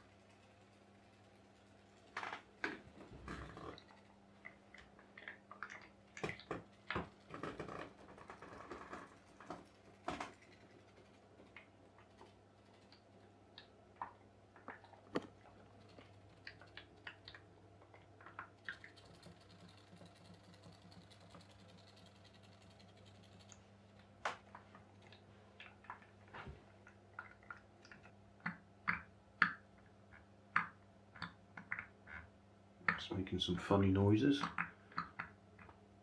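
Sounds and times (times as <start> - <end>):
boat boiler clicks and ticks: 0.0 - 4.6
faint low hum: 0.0 - 36.0.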